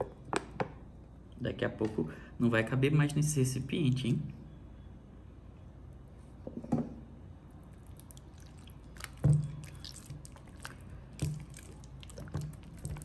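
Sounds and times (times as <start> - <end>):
slime squelches: 7.6 - 13.0
slime squishing: 7.7 - 13.0.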